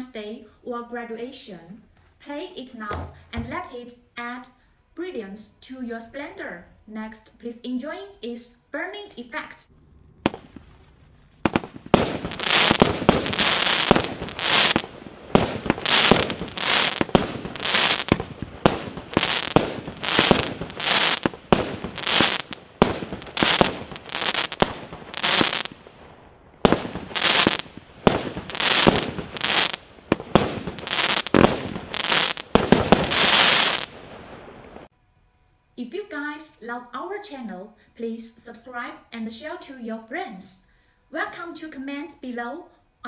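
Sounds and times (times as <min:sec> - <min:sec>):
fireworks cracks: 0:09.7 - 0:34.9
fireworks hissing: 0:10.2 - 0:25.9, 0:26.6 - 0:34.0.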